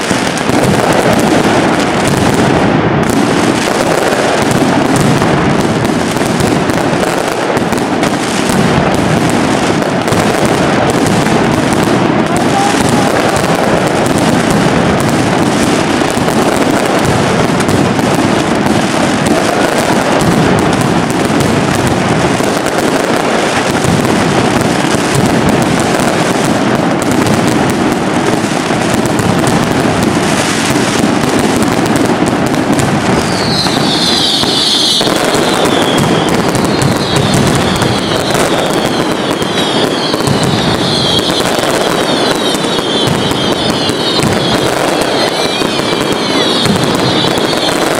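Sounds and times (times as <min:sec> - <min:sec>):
firecracker bangs and aerial bursts: 0:00.0 - 0:47.9
shrill high whistles: 0:33.3 - 0:41.2, 0:45.2 - 0:47.7.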